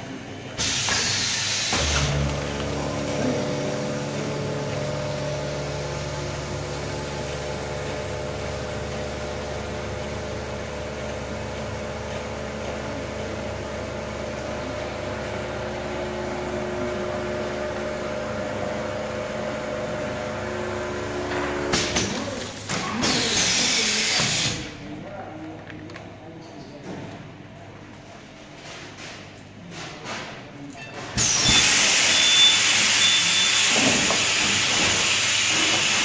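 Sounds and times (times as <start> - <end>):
vacuum pump humming: 1.7 - 21.9.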